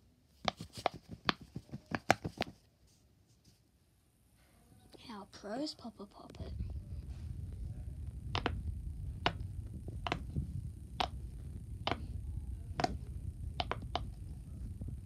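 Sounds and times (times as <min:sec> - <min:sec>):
low steady rumble: 0:04.2 - 0:15.0
fidget toy bubbles popping: 0:11.0 - 0:11.2, 0:11.8 - 0:12.1, 0:13.6 - 0:14.2.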